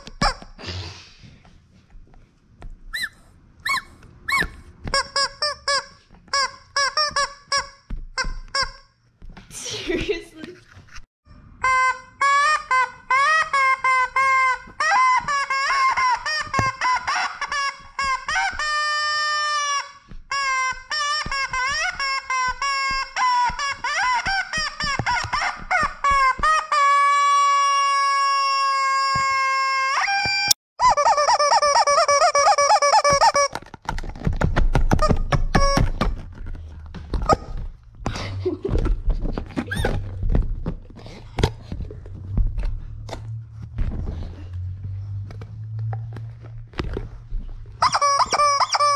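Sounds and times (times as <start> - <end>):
rubber chicken squawking: 47.8 - 48.9.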